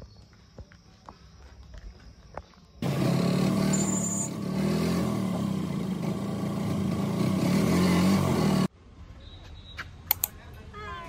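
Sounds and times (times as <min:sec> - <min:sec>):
small rickshaw engine running: 0:02.8 - 0:08.7.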